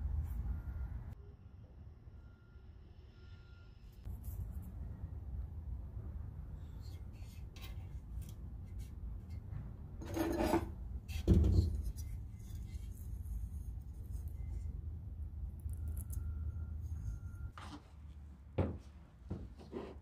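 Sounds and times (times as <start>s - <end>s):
low steady hum: 0.0s - 18.6s
object scraping on workbench: 10.0s - 12.0s.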